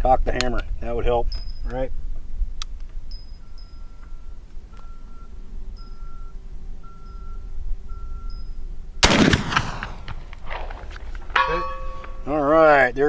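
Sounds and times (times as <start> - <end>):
short beeps: 3.1 - 9.1
rifle shot: 9.0 - 11.0
bullet ringing steel target: 9.0 - 12.4.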